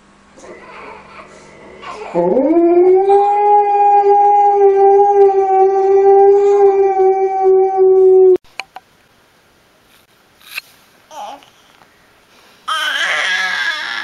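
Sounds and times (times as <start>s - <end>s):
dog howling: 0.4s - 8.4s, 12.9s - 14.0s.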